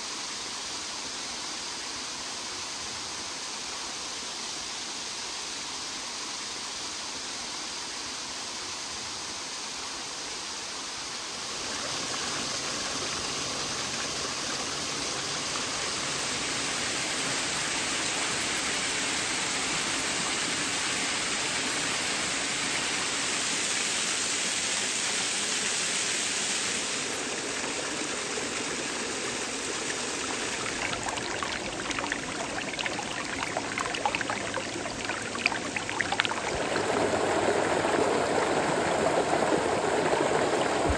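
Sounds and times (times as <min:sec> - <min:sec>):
water rushing down creek: 0:11.0 - 0:40.9
water splashing over rocks: 0:27.0 - 0:40.9.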